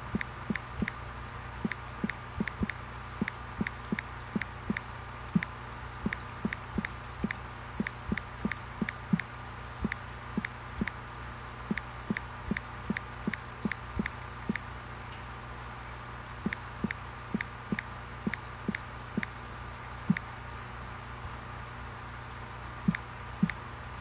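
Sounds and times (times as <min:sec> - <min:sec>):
water plinks in aquarium: 0:00.0 - 0:01.0, 0:01.6 - 0:11.0, 0:20.1 - 0:20.3, 0:22.9 - 0:23.6
low pump hum: 0:00.0 - 0:24.0.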